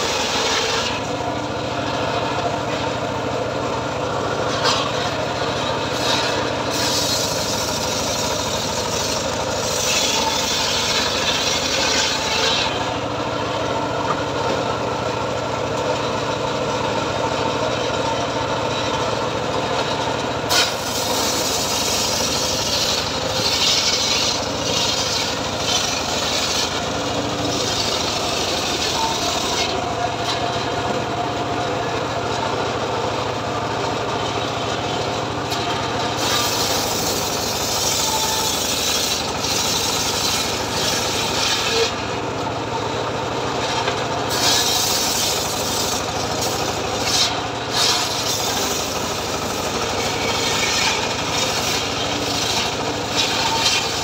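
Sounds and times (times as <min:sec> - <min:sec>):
saw blade ripping log: 0:00.0 - 0:03.0, 0:04.4 - 0:13.1, 0:20.5 - 0:31.0, 0:35.4 - 0:42.2, 0:43.6 - 0:54.0
engine drone: 0:00.0 - 0:54.0.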